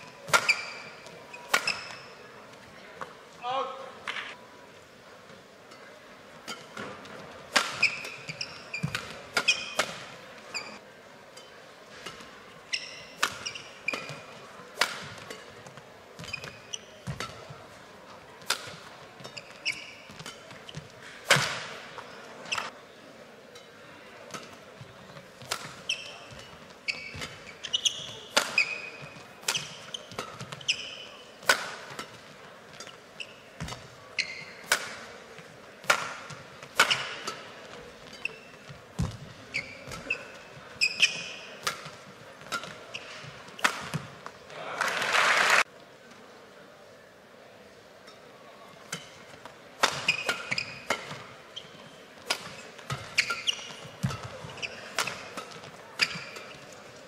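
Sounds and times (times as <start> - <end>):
shoes squeaking on court: 0.0 - 3.2, 5.4 - 22.8, 23.6 - 44.5, 48.1 - 57.0
racket striking shuttlecock: 0.1 - 2.1, 6.4 - 10.6, 11.4 - 15.6, 18.4 - 21.8, 25.4 - 33.0, 33.6 - 35.2, 35.8 - 38.4, 39.8 - 44.2, 49.8 - 51.4, 52.2 - 56.7.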